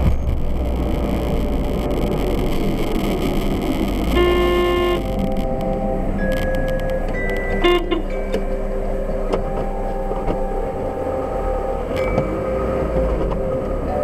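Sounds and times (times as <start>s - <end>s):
car engine and tyre noise: 0.0s - 14.0s
car horn toot: 4.0s - 6.0s, 7.4s - 8.4s.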